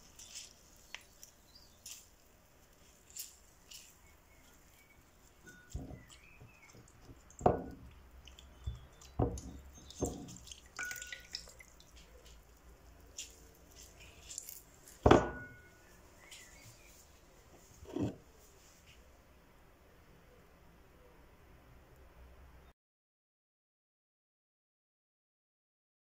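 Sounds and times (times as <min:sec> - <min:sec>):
fingers tearing leaves: 0:00.0 - 0:12.4, 0:13.1 - 0:15.0
small plops into water: 0:08.3 - 0:12.4.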